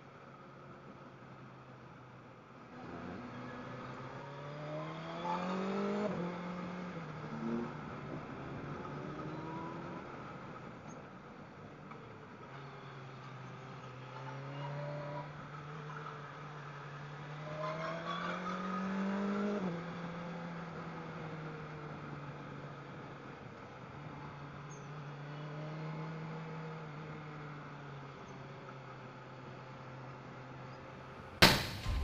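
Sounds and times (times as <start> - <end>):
wind and road noise: 0.0 - 32.0.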